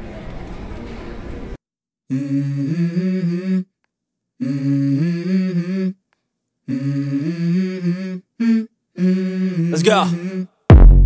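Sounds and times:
wordless hummed vocals: 0:02.1 - 0:03.7, 0:04.4 - 0:06.0, 0:06.7 - 0:10.6.

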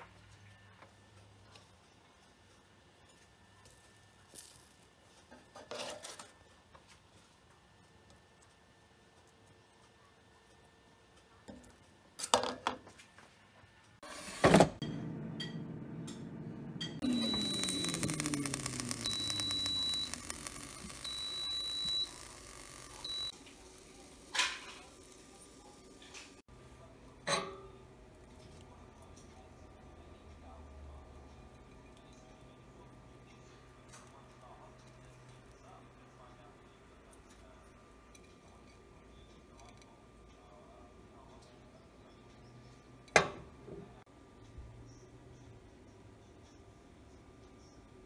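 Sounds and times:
air fryer timer alarm beeping: 0:16.8 - 0:25.8.

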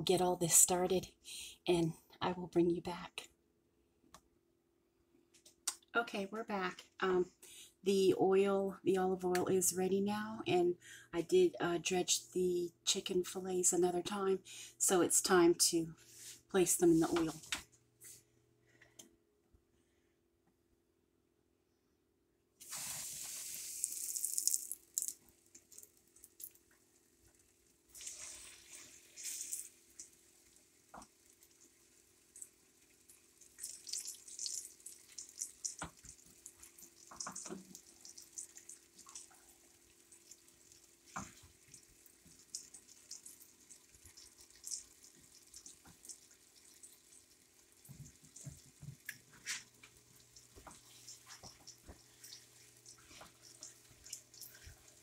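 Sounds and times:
chicken sizzling in hot oil: 0:22.6 - 0:55.0
oil crackling and spitting: 0:22.6 - 0:55.0.

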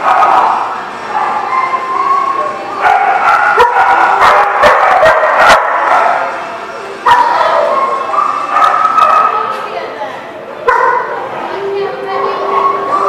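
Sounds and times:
dogs yipping and whining: 0:00.0 - 0:06.2, 0:07.1 - 0:09.5, 0:12.2 - 0:13.0.

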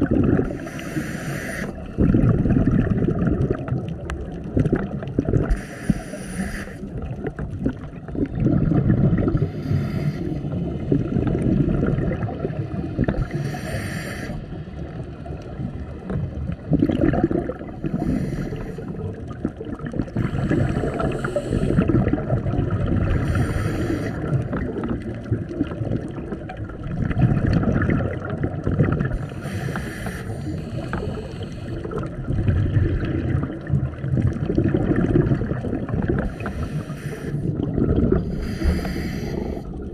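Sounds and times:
bubbling exhaled air: 0:00.0 - 0:39.9
regulator hissing inhale: 0:00.5 - 0:01.9, 0:05.5 - 0:06.9, 0:09.4 - 0:10.6, 0:13.2 - 0:14.6, 0:17.8 - 0:19.1, 0:20.2 - 0:21.9, 0:23.1 - 0:24.4, 0:29.2 - 0:31.9, 0:36.2 - 0:37.5, 0:38.2 - 0:39.9.

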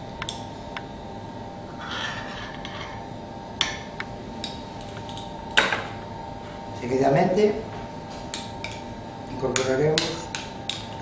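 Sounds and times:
steady hum: 0:00.0 - 0:11.0.

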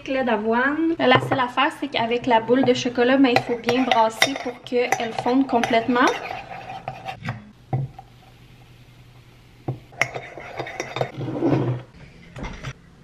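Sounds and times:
teaspoon clinking in a mug: 0:03.4 - 0:06.4.

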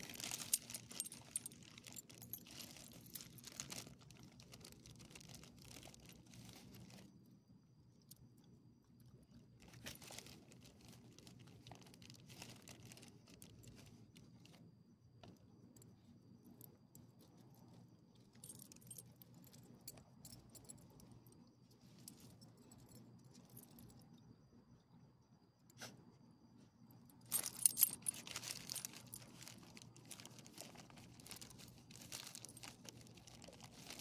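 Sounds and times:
dog collar tags jangling: 0:00.0 - 0:04.0, 0:18.2 - 0:21.2, 0:27.2 - 0:34.0.

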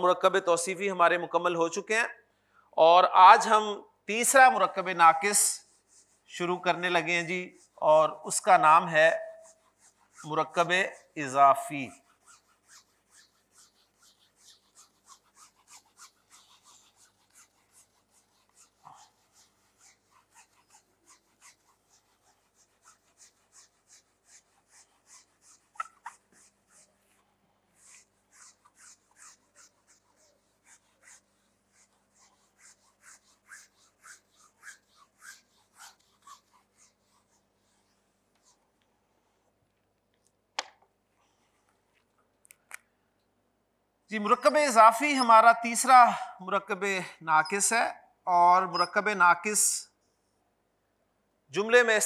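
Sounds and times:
eraser wiping whiteboard: 0:04.2 - 0:38.7, 0:44.2 - 0:46.0, 0:48.6 - 0:49.8.

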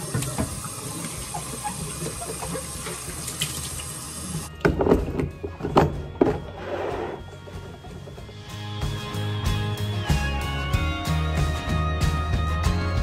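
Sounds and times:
tap running into sink: 0:00.0 - 0:04.5.

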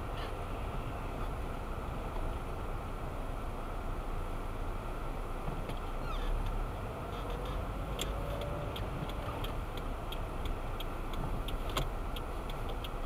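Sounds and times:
engine and tyre hum: 0:00.0 - 0:13.0
turn signal ticking: 0:05.4 - 0:13.0.

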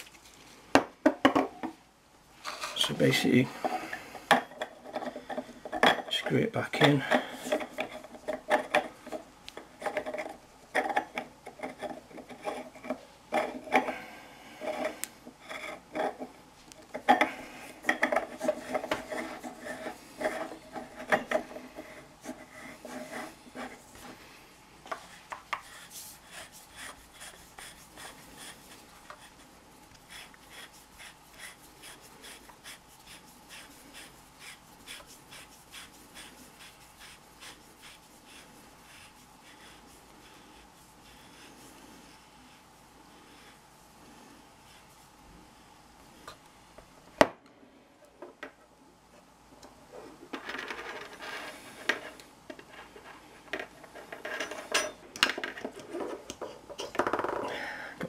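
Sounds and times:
threads ticking and scraping: 0:02.4 - 0:42.2.

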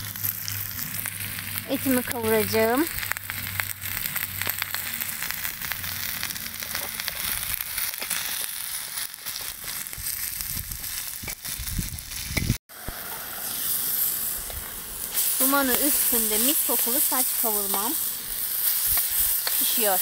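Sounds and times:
crackling pops: 0:00.0 - 0:13.2
meat sizzling in a pan: 0:00.0 - 0:20.0.

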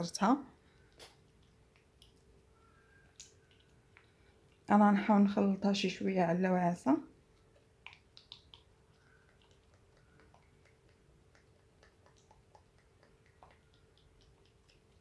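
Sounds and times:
faint steady hum: 0:00.0 - 0:15.0
faint small ticks and clicks: 0:00.6 - 0:04.7, 0:07.3 - 0:15.0.

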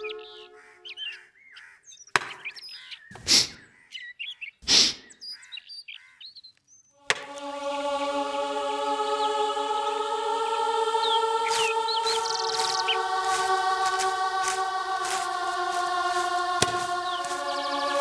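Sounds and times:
background music with held notes: 0:00.0 - 0:01.1, 0:07.0 - 0:18.0
small birds chirping: 0:00.0 - 0:07.0, 0:11.0 - 0:18.0.

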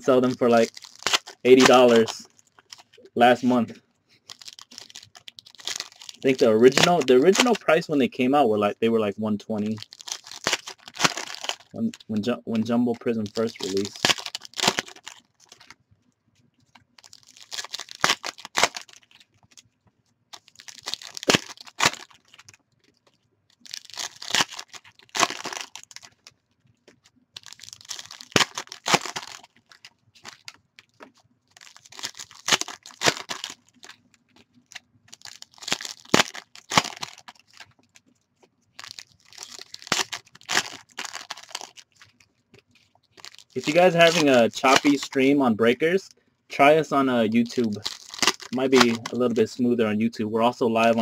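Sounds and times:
foil wrappers tearing and crinkling: 0:00.0 - 0:03.6, 0:04.2 - 0:07.8, 0:09.6 - 0:15.8, 0:16.7 - 0:19.6, 0:20.3 - 0:38.0, 0:38.7 - 0:45.3, 0:46.6 - 0:49.4.

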